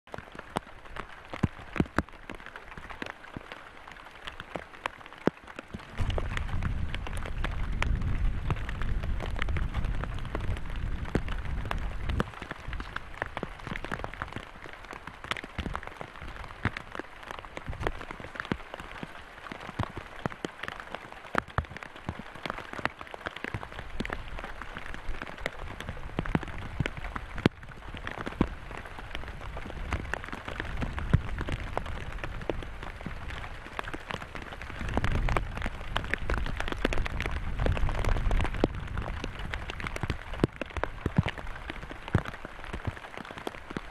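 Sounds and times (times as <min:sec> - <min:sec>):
rain falling: 0:00.0 - 0:43.9
raindrops ticking close by: 0:00.0 - 0:43.9.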